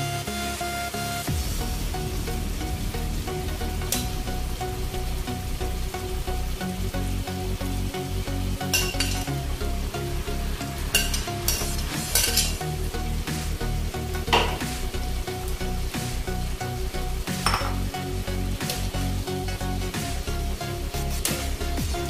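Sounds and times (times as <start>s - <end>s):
beans and beef sizzling in a pan: 1.3s - 22.0s
metal spatula scraping pan: 10.9s - 12.6s.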